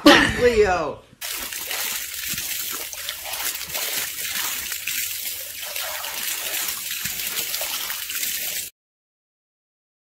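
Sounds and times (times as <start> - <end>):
water jet splashing: 1.2 - 8.7.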